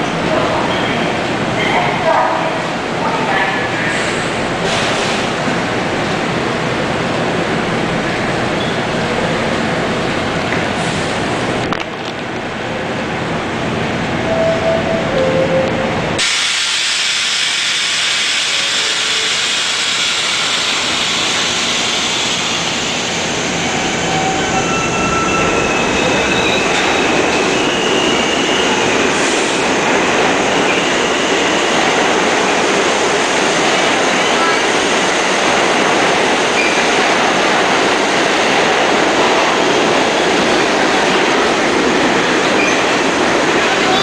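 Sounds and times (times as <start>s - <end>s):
subway train wheels rumbling: 0.0s - 44.0s.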